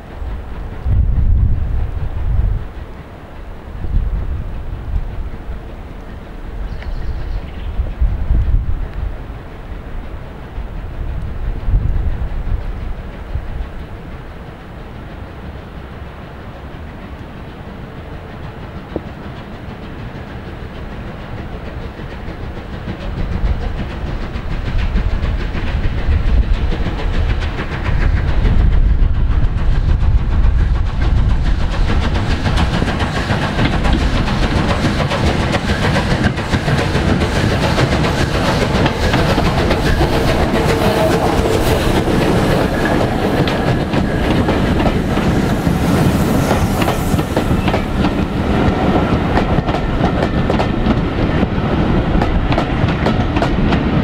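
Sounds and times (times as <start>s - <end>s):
steam locomotive exhaust: 0.0s - 54.0s
coaches clattering over rail joints: 30.1s - 54.0s.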